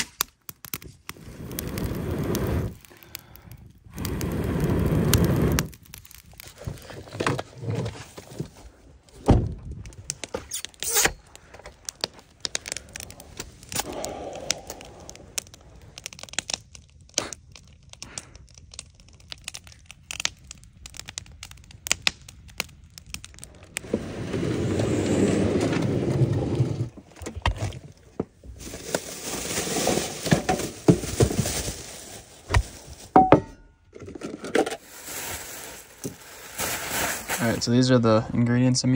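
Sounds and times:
campfire crackling and popping: 0.0s - 24.3s.

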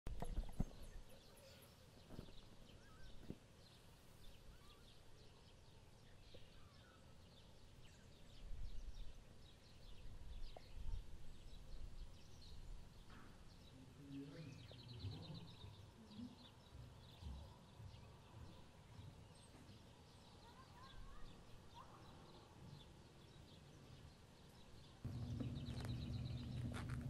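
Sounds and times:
soft low bumps: 25.1s - 27.0s.

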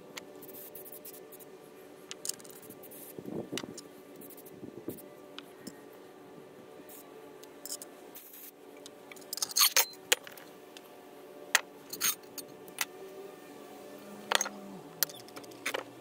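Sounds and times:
metal tools clinking on plastic: 9.1s - 10.4s, 11.9s - 12.5s, 14.3s - 15.9s.

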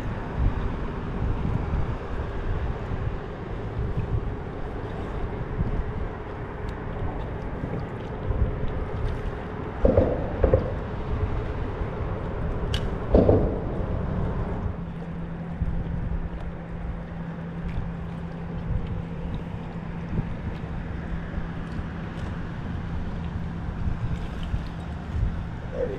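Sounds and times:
water around a kayak: 0.0s - 25.9s
wind: 0.0s - 25.9s
dull knocks on kayak hull: 9.8s - 11.1s, 13.1s - 14.0s.

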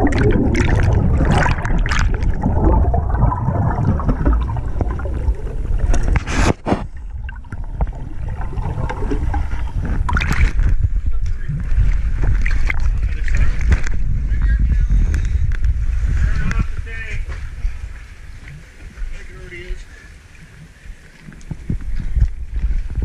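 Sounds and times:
underwater regulator bubbling: 0.0s - 14.2s.

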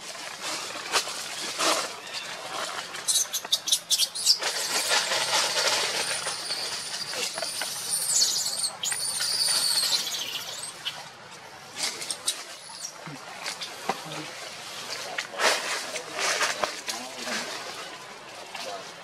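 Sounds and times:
baby monkey screaming: 3.1s - 4.9s, 5.8s - 11.0s.

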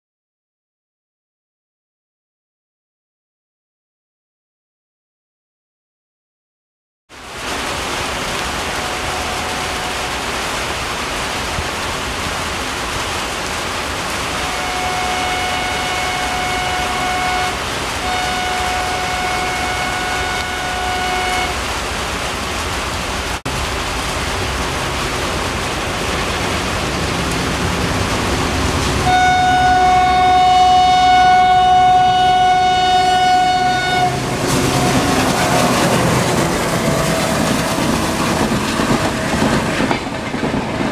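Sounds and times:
heavy rain hiss: 7.1s - 39.9s
locomotive engine rumble: 7.7s - 40.9s
locomotive horn blasts: 8.5s - 10.3s, 14.3s - 21.6s, 29.0s - 37.8s.

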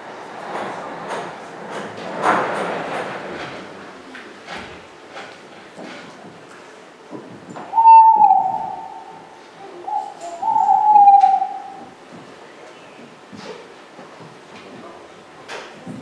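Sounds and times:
owl hooting: 7.6s - 12.0s.

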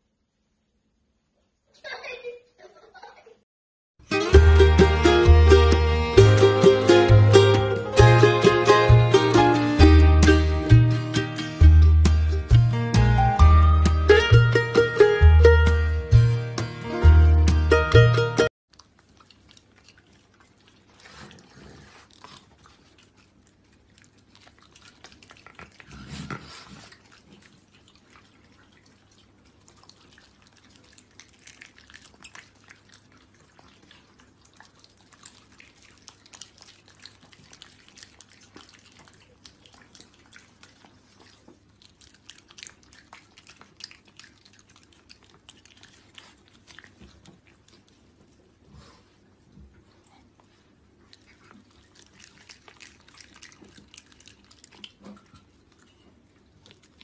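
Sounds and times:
raccoon chewing: 18.7s - 57.0s.

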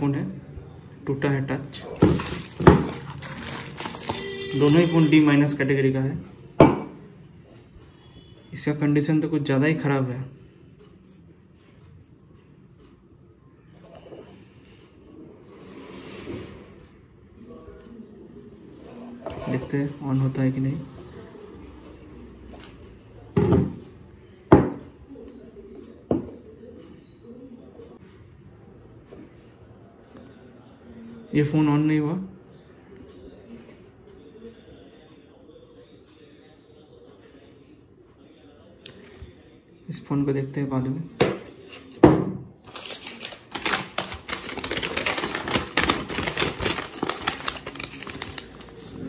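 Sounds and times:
paper crackling and rustling: 2.0s - 5.1s, 42.7s - 49.0s.

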